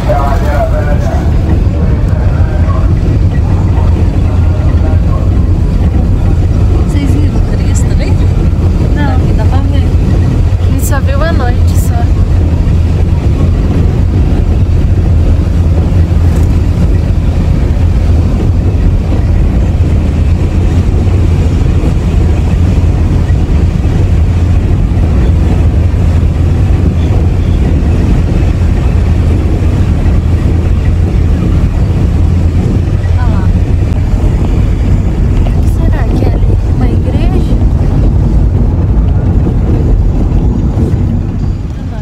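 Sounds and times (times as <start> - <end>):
car engine and tyres rumbling: 0.0 - 42.0.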